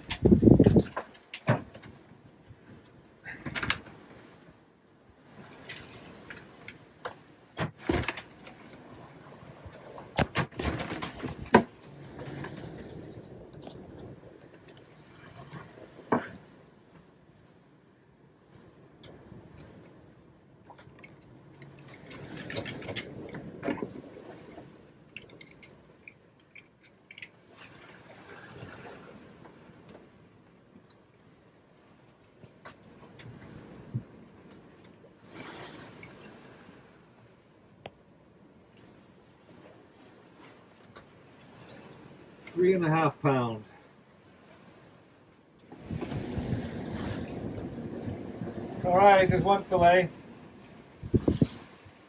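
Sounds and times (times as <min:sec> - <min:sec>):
wind and sea rushing: 0:00.0 - 0:52.0
faint clicks and scrapes: 0:09.7 - 0:16.4, 0:19.0 - 0:31.2, 0:50.6 - 0:51.9.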